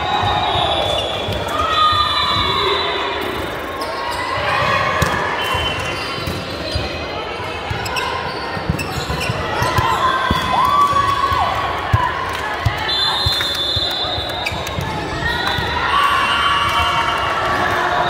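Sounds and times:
shoes squeaking on court: 5.4 - 10.3.

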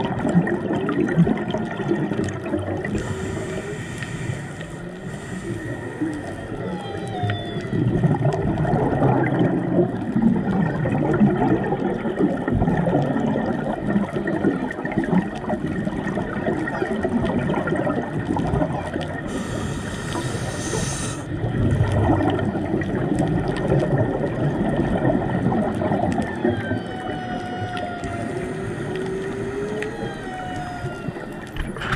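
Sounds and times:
underwater crackling and gurgling: 0.0 - 31.9
whale song: 0.0 - 31.9
brief hiss: 19.4 - 21.2.

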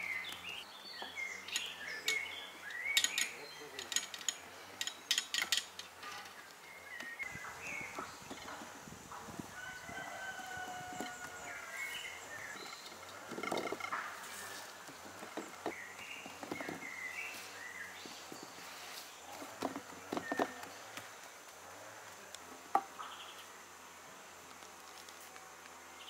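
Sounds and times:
small birds chirping: 0.0 - 23.6
rooster crowing: 9.4 - 12.2.

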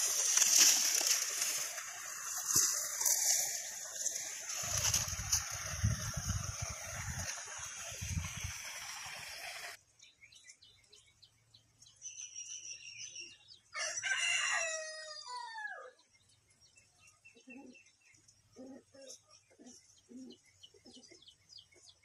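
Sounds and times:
water splashing: 0.0 - 9.8
small birds chirping: 9.3 - 13.8, 16.0 - 22.0
rooster crowing: 13.8 - 16.0.

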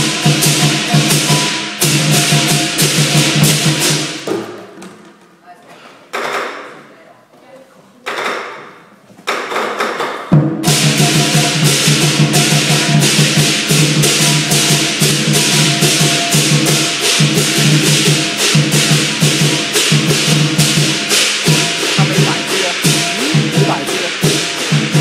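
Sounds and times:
cymbals: 0.0 - 4.6, 10.2 - 25.0
big drum beating: 0.0 - 5.0, 10.3 - 25.0.

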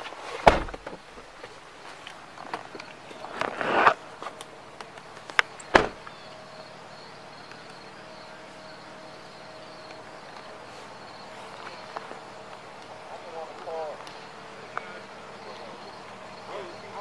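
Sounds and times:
rustle: 0.0 - 6.7
insects trilling: 2.1 - 17.0.

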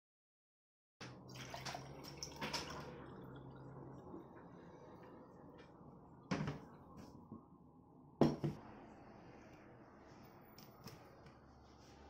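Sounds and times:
hard objects knocking: 8.2 - 8.6.

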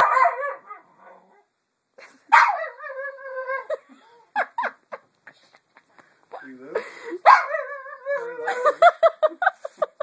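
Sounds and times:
dog yelps: 0.0 - 0.8, 2.3 - 3.8, 7.2 - 8.2.

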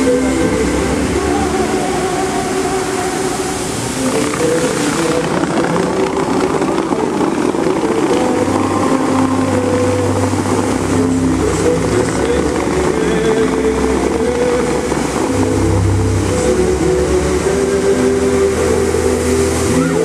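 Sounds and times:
fountain water jets rushing: 0.0 - 20.0
music with long held notes: 0.0 - 20.0.

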